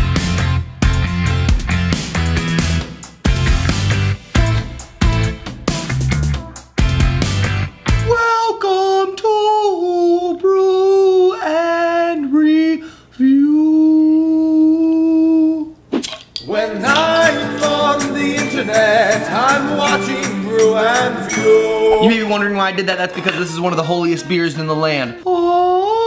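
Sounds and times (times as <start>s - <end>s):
music jingle with voices: 16.4s - 25.5s
man singing unaccompanied: 16.4s - 26.0s.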